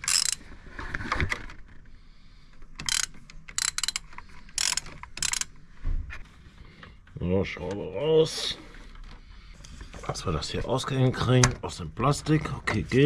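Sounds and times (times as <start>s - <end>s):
hand ratchet clicking: 0.0s - 0.4s, 2.8s - 5.5s.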